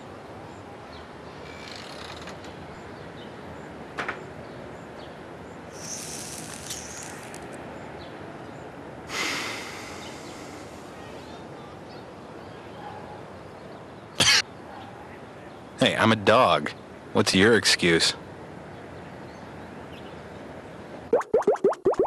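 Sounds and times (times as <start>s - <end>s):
steady outdoor background: 0.0s - 22.0s
breathy whoosh of exhaled smoke: 5.7s - 7.4s, 9.1s - 11.0s
cigarette drag hiss: 5.7s - 7.5s, 9.1s - 11.0s.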